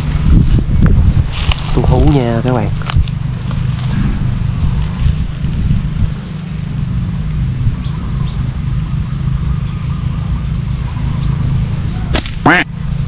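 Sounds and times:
vehicle engine humming: 0.0s - 13.0s
sharp loud bangs: 3.9s - 6.2s.

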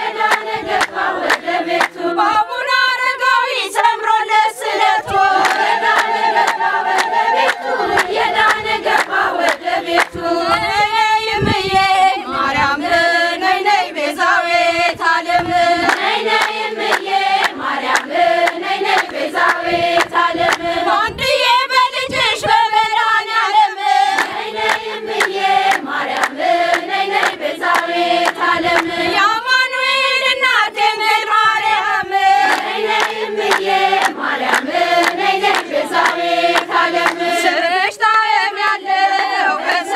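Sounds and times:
women singing a hymn: 0.0s - 39.9s
hand clapping: 0.3s - 2.0s, 5.4s - 10.2s, 15.8s - 20.7s, 24.1s - 28.9s, 32.5s - 37.3s.

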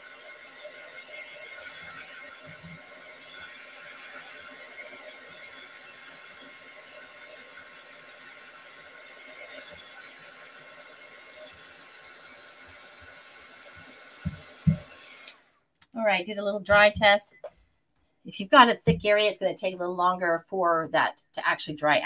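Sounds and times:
heat gun blowing air: 0.0s - 15.6s.

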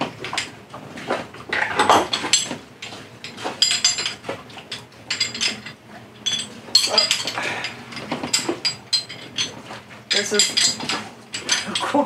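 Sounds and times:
metal shackles clinking: 0.0s - 0.6s, 1.5s - 12.0s.

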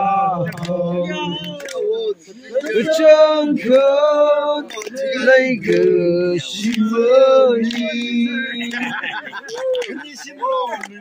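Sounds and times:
men and women singing: 0.0s - 1.8s, 2.6s - 9.1s.

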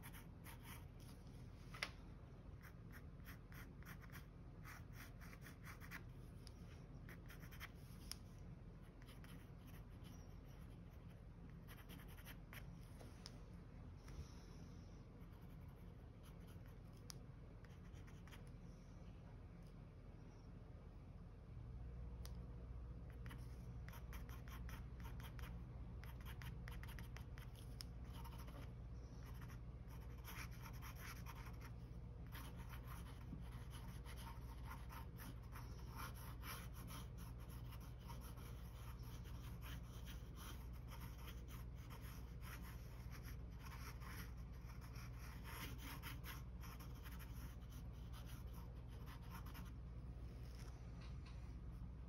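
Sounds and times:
faint low hum: 0.0s - 52.0s
pen scratching on paper: 2.6s - 6.0s, 7.1s - 8.1s, 11.6s - 12.7s, 23.2s - 49.7s.

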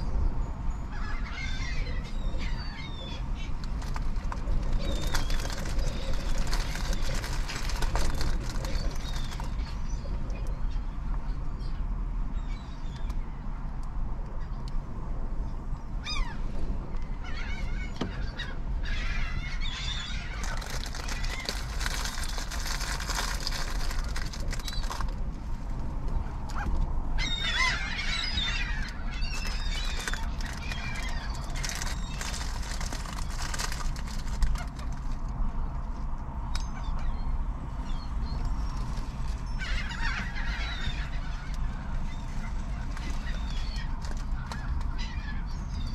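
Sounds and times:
steady low rumble: 0.0s - 45.9s
gulls calling: 26.2s - 34.9s.

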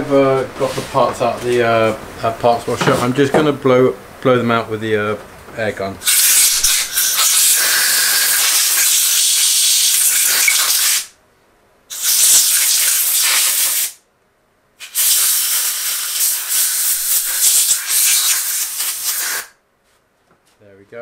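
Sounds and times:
compressed air blow gun hissing: 6.0s - 11.1s, 11.9s - 14.0s, 14.8s - 19.6s.

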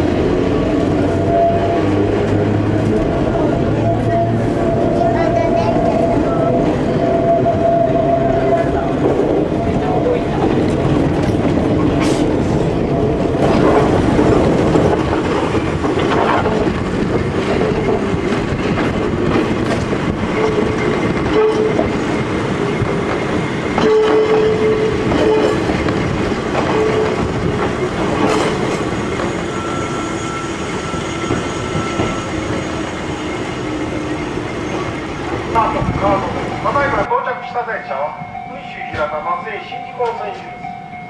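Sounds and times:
electric train running hum: 0.0s - 37.1s
wheels clacking over rail joints: 8.8s - 29.9s.

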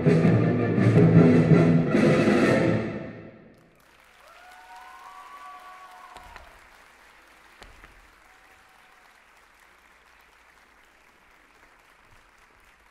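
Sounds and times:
audience applauding: 3.5s - 12.9s
thump: 7.6s - 8.0s.

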